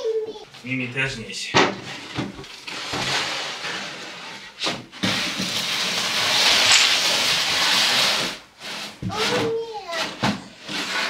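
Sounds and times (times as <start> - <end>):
plastic bin scraping on wooden floor: 1.8 - 9.1, 10.1 - 11.0
handling noise: 6.2 - 7.4.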